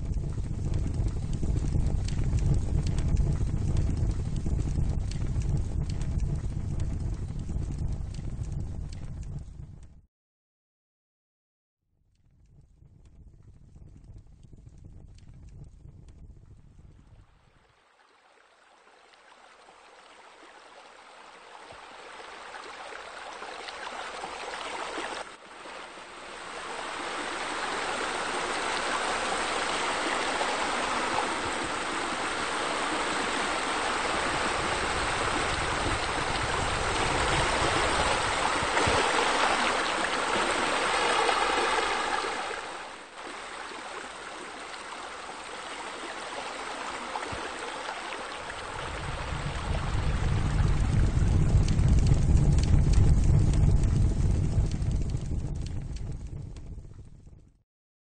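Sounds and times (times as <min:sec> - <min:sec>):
water splashing into pool: 0:17.5 - 0:50.9.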